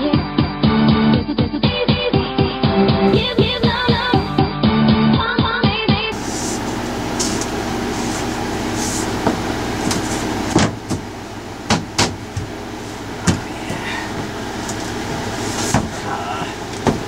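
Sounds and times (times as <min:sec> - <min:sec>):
steady low hum: 0:03.1 - 0:04.5, 0:06.1 - 0:17.0
hatch lid knocking and thumping: 0:09.2 - 0:12.6, 0:13.2 - 0:14.8, 0:16.7 - 0:17.0.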